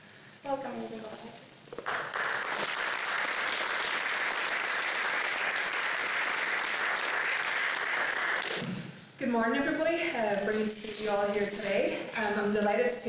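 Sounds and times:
audience applause: 0:01.8 - 0:08.8.

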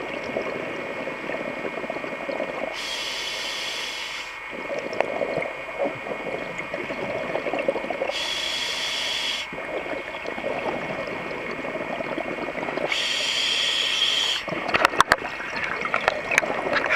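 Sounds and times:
bubbly underwater exhalation: 0:00.0 - 0:02.8, 0:04.5 - 0:08.2, 0:09.5 - 0:13.2, 0:14.4 - 0:16.9
regulator hiss of inhalation: 0:02.7 - 0:04.4, 0:08.1 - 0:09.6, 0:12.9 - 0:14.5.

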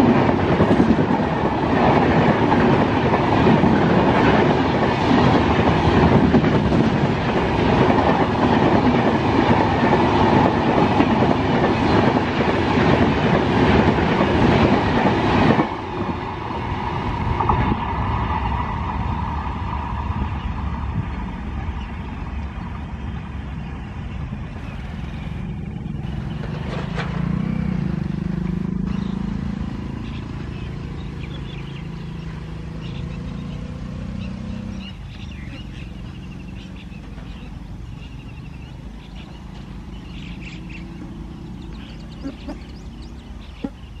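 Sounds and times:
train coaches rumbling on rails: 0:00.0 - 0:44.0
birds chirping: 0:20.2 - 0:44.0.

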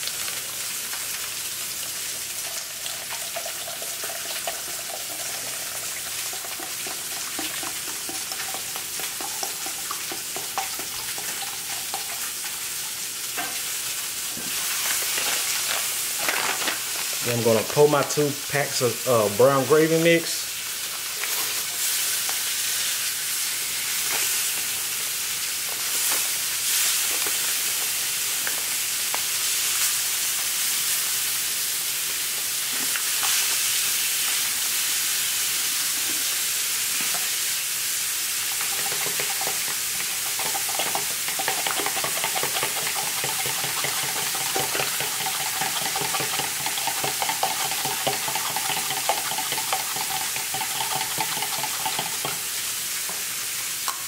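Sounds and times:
fork whisking in plastic cup: 0:38.6 - 0:52.4.

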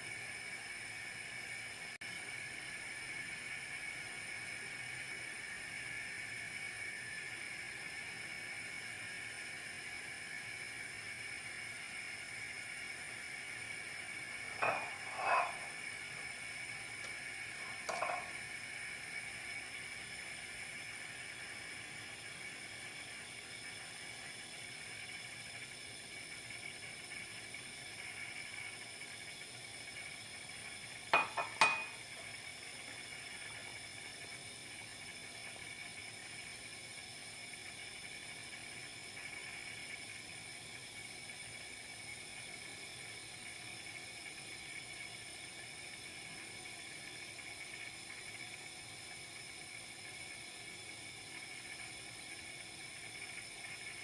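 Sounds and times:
utensils clinking on kitchenware: 0:31.2 - 0:32.0.

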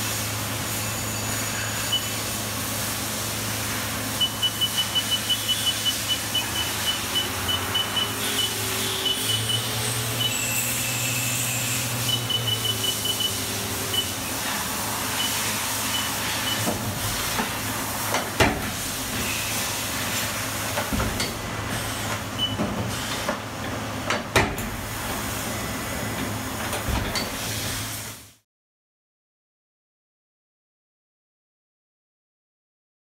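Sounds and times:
milling machine hum and hiss: 0:00.0 - 0:28.4
short high beeps: 0:01.8 - 0:02.2, 0:04.2 - 0:14.2, 0:15.1 - 0:16.7.

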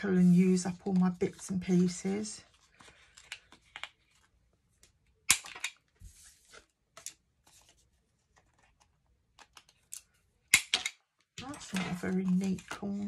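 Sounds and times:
card rustling: 0:00.1 - 0:05.1, 0:05.8 - 0:10.2.

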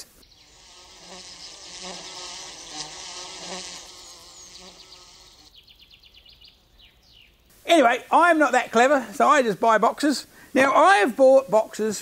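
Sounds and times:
bee buzzing: 0:00.2 - 0:05.6.

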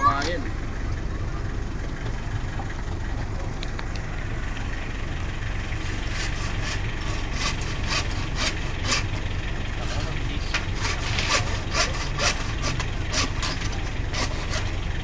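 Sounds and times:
low hum: 0:00.0 - 0:15.0
handsaw cutting wood: 0:05.8 - 0:09.2, 0:10.7 - 0:14.8.

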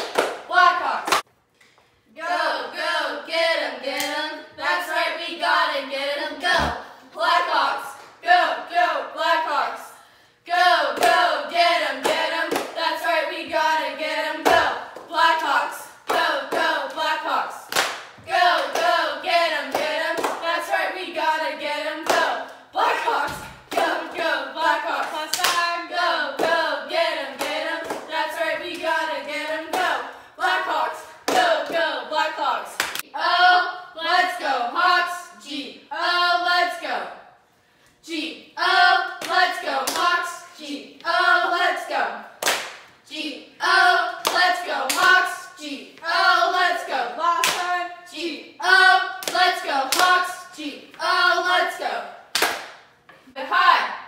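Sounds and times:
hand claps: 0:00.0 - 0:00.4, 0:42.4 - 0:42.9, 0:52.4 - 0:52.8
sharp claps: 0:00.0 - 0:00.5, 0:17.7 - 0:18.9, 0:42.4 - 0:42.9, 0:47.4 - 0:47.7, 0:52.3 - 0:52.8
girls chanting a cheer: 0:00.2 - 0:01.2, 0:02.1 - 0:09.9, 0:10.5 - 0:37.1, 0:38.0 - 0:42.4, 0:43.0 - 0:52.2, 0:53.3 - 0:54.0.

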